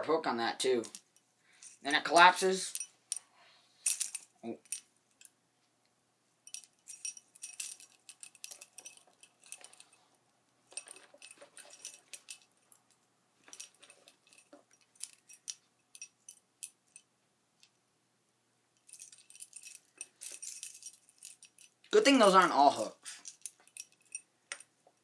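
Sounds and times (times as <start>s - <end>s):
metal lure blades jingling: 0.8s - 3.2s, 3.9s - 5.3s, 6.5s - 10.0s, 10.7s - 17.0s, 18.8s - 24.7s.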